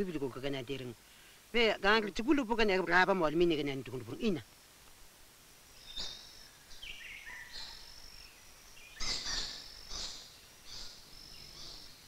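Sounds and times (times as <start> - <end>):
birds calling: 5.7 - 12.0.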